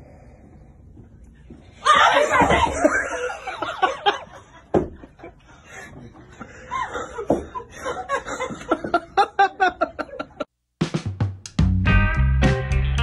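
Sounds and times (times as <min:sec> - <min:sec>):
people laughing: 0:01.8 - 0:10.5.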